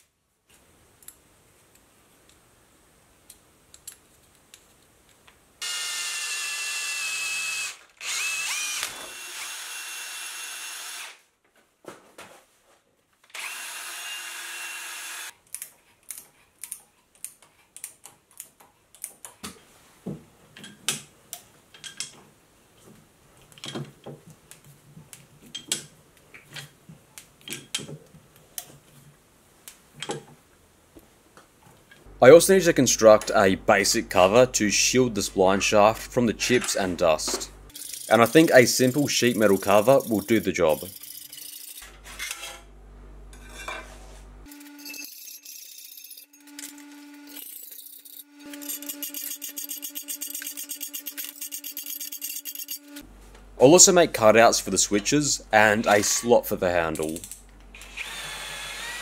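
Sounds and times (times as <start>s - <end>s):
power drill whining: 5.6s - 11.2s, 13.3s - 15.3s, 57.8s - 59.0s.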